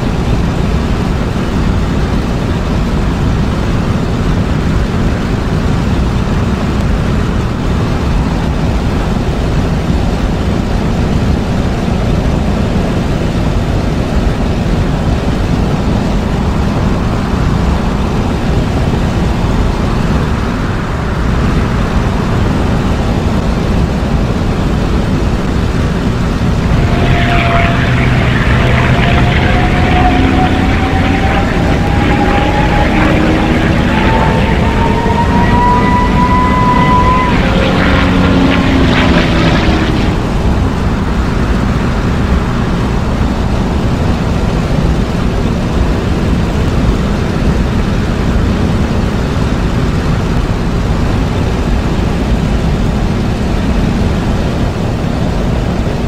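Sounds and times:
propeller aircraft engine running: 0.0 - 56.0
steady higher tone: 11.6 - 46.7.

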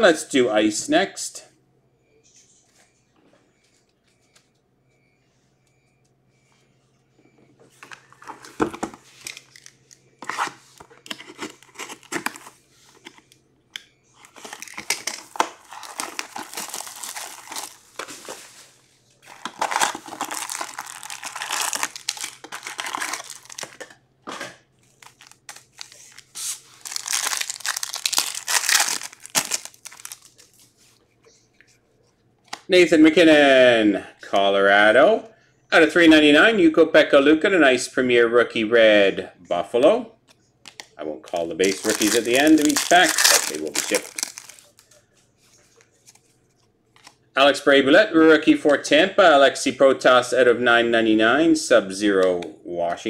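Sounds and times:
foil wrapper tearing and crinkling: 14.4 - 17.9, 19.3 - 23.9, 25.0 - 30.4, 41.6 - 44.8.

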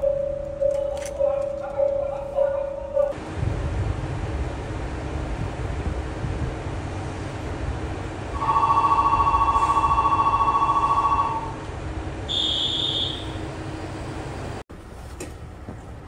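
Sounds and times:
short high beep: 8.4 - 11.5
two-note electronic ringing: 8.4 - 11.6.

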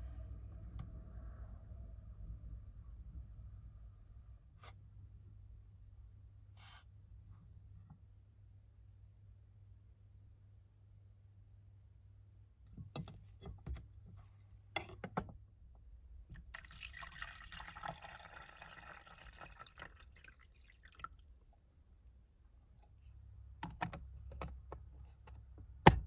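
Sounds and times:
liquid pouring into container: 16.3 - 21.7.

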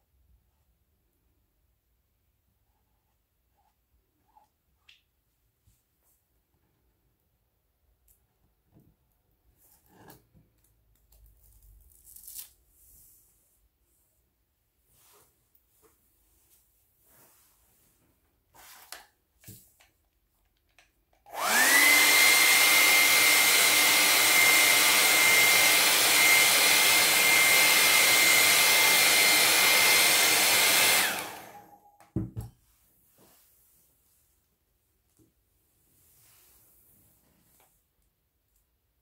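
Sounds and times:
hair dryer running: 21.3 - 31.9.

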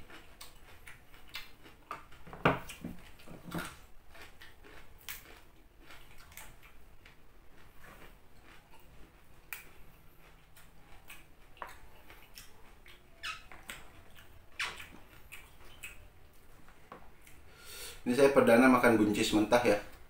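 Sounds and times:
chewing crisp raw vegetables: 0.0 - 17.5
wet mouth clicks: 10.5 - 16.1.

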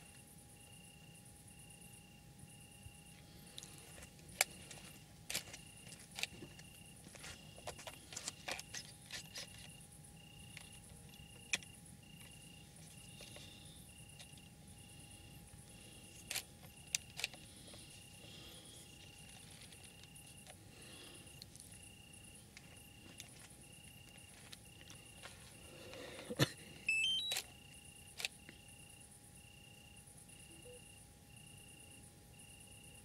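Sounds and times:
crickets chirping: 0.0 - 33.0
high insect trill: 0.0 - 33.0.

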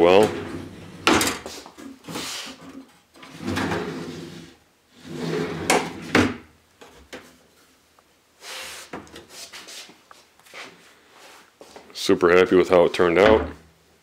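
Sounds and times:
wooden drawer sliding: 0.2 - 1.5, 3.2 - 6.4
drawer closing knocks: 13.2 - 13.6.

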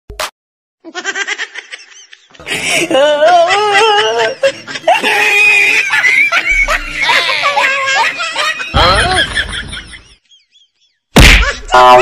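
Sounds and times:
person laughing: 0.9 - 10.2.

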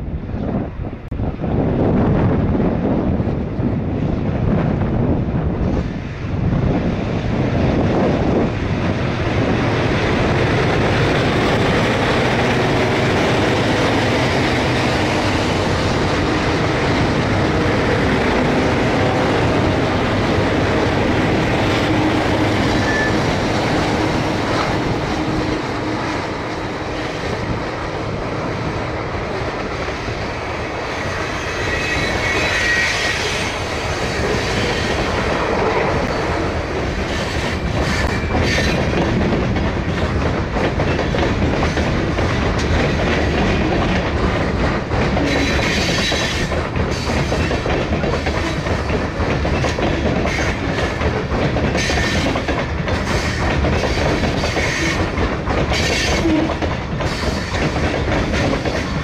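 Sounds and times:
diesel locomotives working uphill: 0.0 - 59.0
high wheel squeal: 22.0 - 23.8, 31.0 - 35.2
wheels clicking over rail joints: 33.6 - 59.0.

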